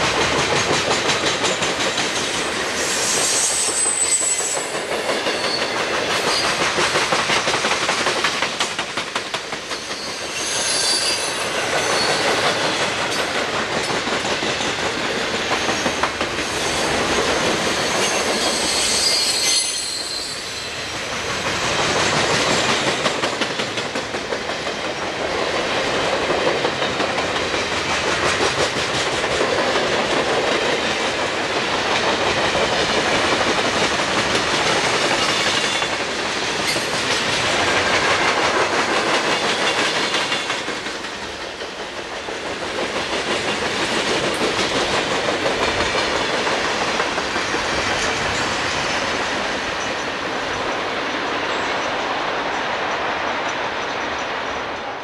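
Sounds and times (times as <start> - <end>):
train wheels clicking over rail joints: 0.0 - 20.1, 21.0 - 52.6
high wheel squeals: 2.8 - 4.7, 9.8 - 12.4, 17.8 - 20.9.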